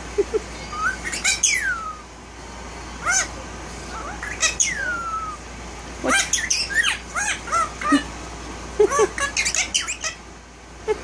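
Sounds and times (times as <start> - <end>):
parakeet calling: 0.1 - 8.2, 8.8 - 10.3.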